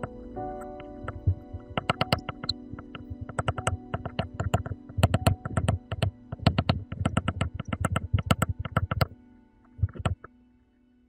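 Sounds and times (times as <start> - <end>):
rapid irregular clicks and taps: 0.0 - 10.3.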